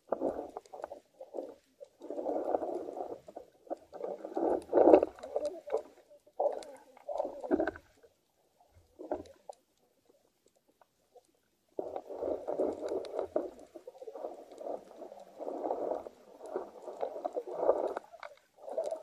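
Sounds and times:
muffled underwater water rushes: 0:00.0 - 0:19.0.

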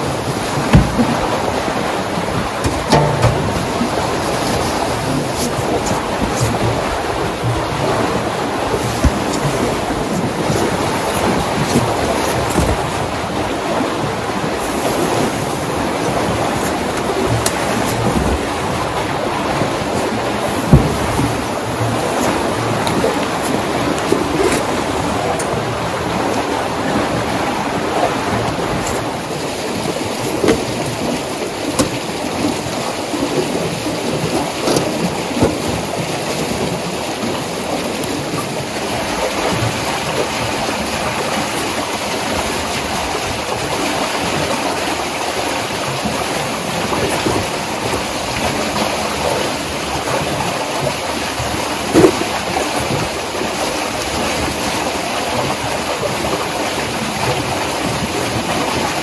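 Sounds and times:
water rushing in channel: 0:00.0 - 0:59.0
knocks: 0:00.7 - 0:01.3, 0:02.6 - 0:04.6, 0:20.6 - 0:21.4.

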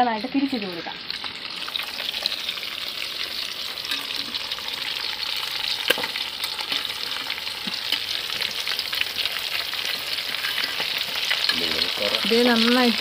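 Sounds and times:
deep-frying crackling sizzle: 0:00.0 - 0:13.0
spoon clinks and scrapes: 0:10.3 - 0:10.9.

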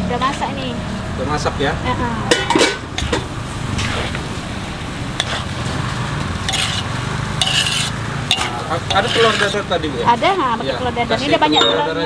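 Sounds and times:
low rumble: 0:00.4 - 0:07.2
spatula scraping wok: 0:02.3 - 0:10.1
noodles sizzling in a wok: 0:03.8 - 0:09.7.

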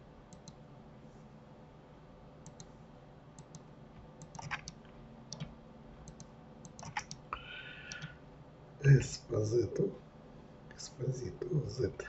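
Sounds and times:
faint steady hum: 0:00.0 - 0:12.0
computer mouse and keyboard clicks: 0:03.4 - 0:07.2, 0:07.9 - 0:08.2.

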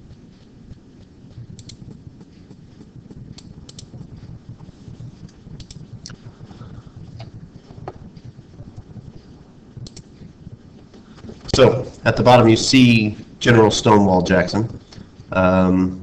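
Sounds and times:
low room noise rumble: 0:00.0 - 0:16.0
computer clicks: 0:01.5 - 0:01.9, 0:03.3 - 0:03.9, 0:05.6 - 0:06.2, 0:09.8 - 0:10.1.

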